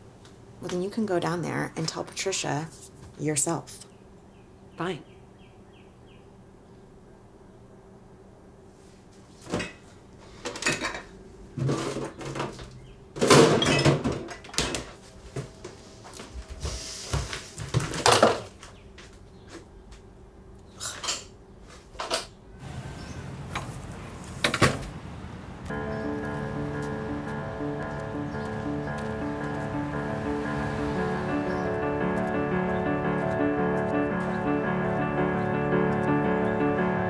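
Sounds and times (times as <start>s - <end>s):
cupboard and dishes clattering: 10.5s - 15.0s, 17.7s - 18.5s.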